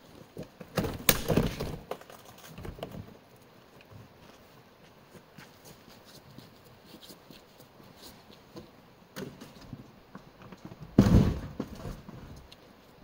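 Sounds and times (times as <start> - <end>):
loud thud: 11.0 - 11.7.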